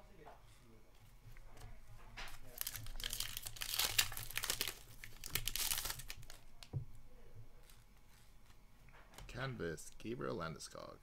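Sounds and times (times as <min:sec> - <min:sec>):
foil wrapper tearing and crinkling: 0:02.4 - 0:06.5.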